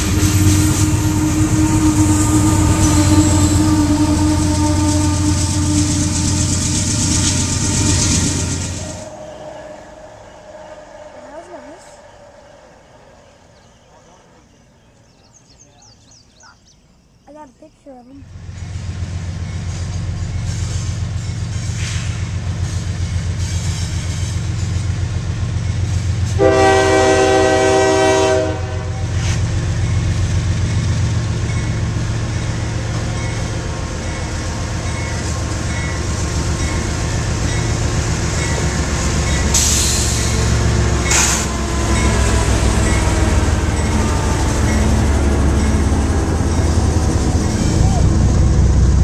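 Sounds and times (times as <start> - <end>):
train horn blast: 0.0 - 12.0, 26.3 - 29.5, 37.7 - 49.0
train cars rolling by: 0.0 - 16.4, 18.2 - 49.0
locomotive engine rumble: 0.0 - 16.6, 17.3 - 49.0.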